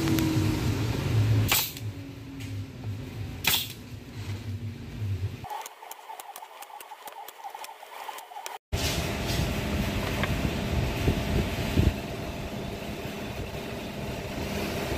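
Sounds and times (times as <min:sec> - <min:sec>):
nail gun shots: 0:01.5 - 0:01.8, 0:03.4 - 0:03.8.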